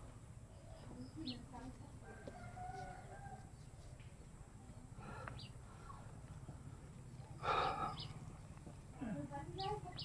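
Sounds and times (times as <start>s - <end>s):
bird chirping: 0.5s - 1.9s, 5.3s - 8.7s, 9.5s - 10.0s.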